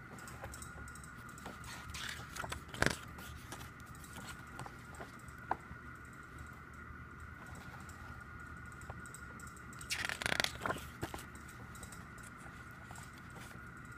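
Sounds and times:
page snapping: 9.9 - 10.7.

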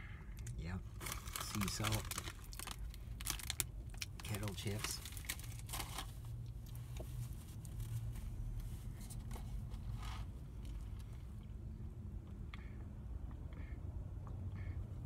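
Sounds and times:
food wrapping rustling: 0.9 - 11.0.

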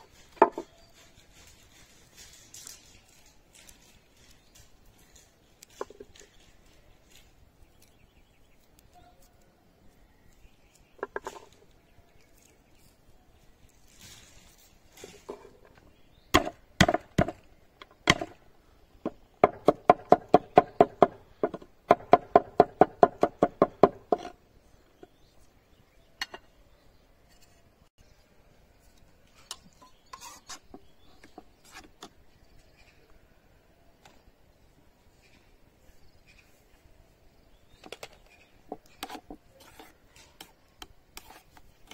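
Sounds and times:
cleaver chopping on wooden board: 16.4 - 17.4.

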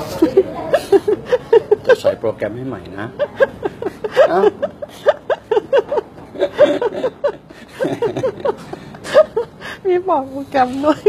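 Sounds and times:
woman laughing: 3.2 - 9.8.

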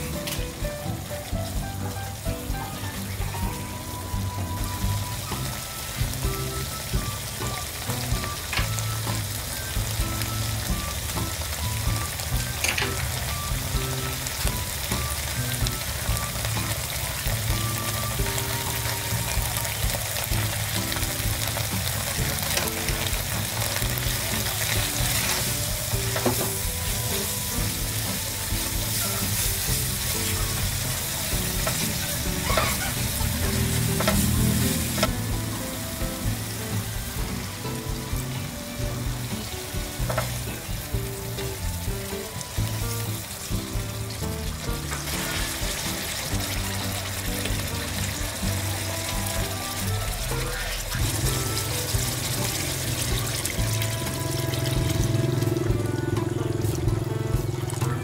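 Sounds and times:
curry paste sizzling in pan: 0.0 - 55.7
spatula scraping pan: 31.4 - 35.2.

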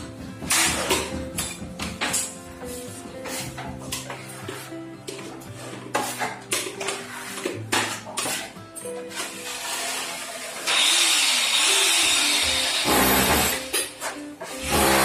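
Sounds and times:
background music: 0.0 - 15.0
trowel scraping and clinking: 3.2 - 10.3.

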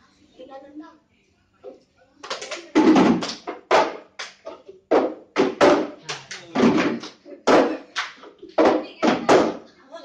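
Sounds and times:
girls speaking: 0.0 - 1.1, 7.2 - 10.0.

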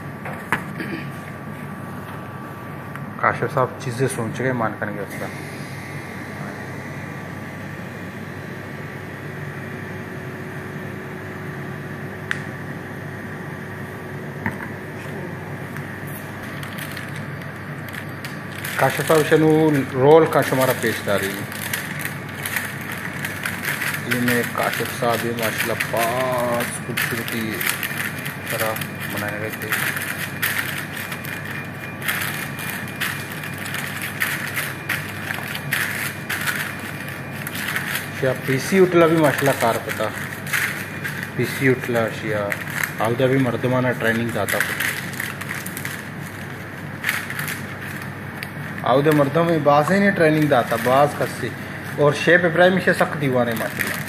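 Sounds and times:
machinery humming: 0.0 - 54.0
paper crinkling and rustling: 16.1 - 54.0.

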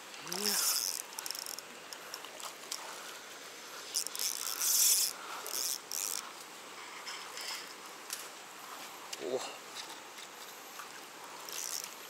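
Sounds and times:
fishing reel rasping: 0.2 - 2.8, 3.8 - 6.3, 11.4 - 12.0.

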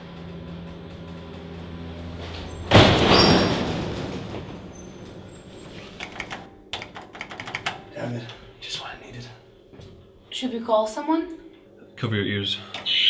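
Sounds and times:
loud bang and rumble: 0.0 - 5.4
elevator humming: 0.0 - 13.0.

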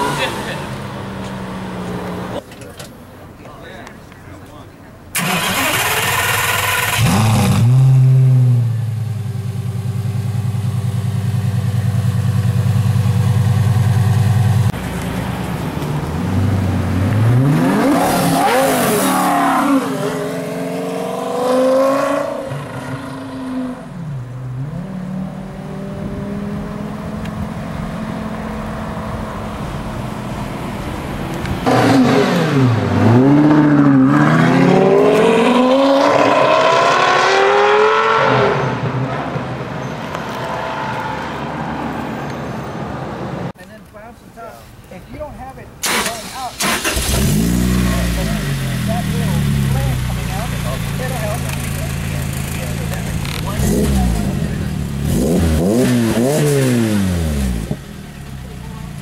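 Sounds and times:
sports car engine starting and idling: 5.1 - 18.5, 45.8 - 59.0
engine revving and accelerating: 5.2 - 8.8, 16.2 - 23.9, 24.5 - 29.5, 31.6 - 39.4, 46.6 - 57.9.

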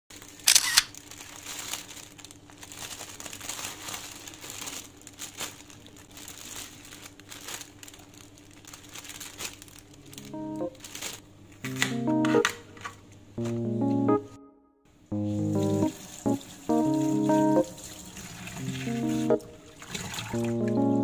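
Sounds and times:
plastic bags crinkling: 0.1 - 11.9.

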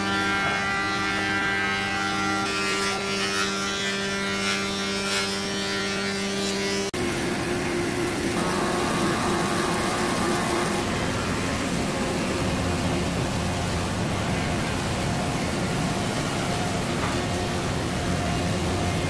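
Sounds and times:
wood moulder machine drone: 5.5 - 19.0.

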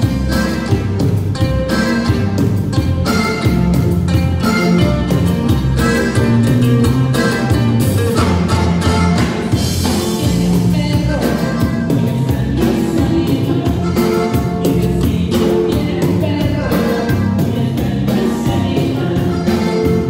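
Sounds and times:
drum kit beat: 0.0 - 20.0
electric bass: 0.0 - 20.0
live band playing cumbia: 0.0 - 20.0
person singing: 4.4 - 20.0.

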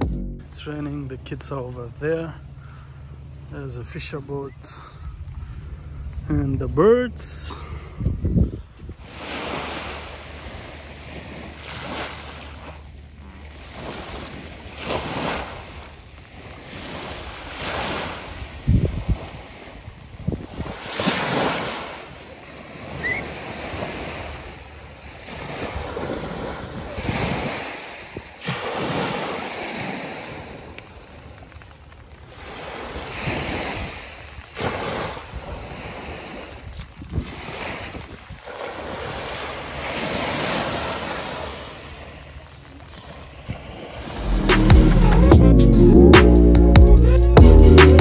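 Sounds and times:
small waves breaking on shore: 0.5 - 44.5
wind buffeting microphone: 4.8 - 12.0, 13.1 - 21.6, 32.3 - 39.3.

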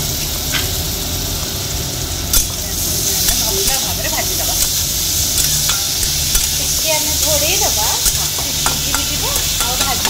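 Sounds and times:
vegetables sizzling in oil: 0.0 - 10.0
metal spatula scraping a pan: 2.4 - 10.0
spatula clicking against pan: 8.0 - 10.0.

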